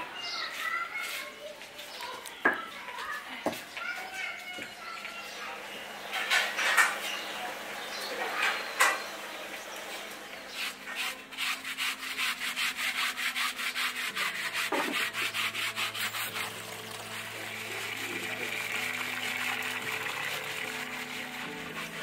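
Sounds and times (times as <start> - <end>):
snail shells rasping in steel sieve: 13.7 - 22.0.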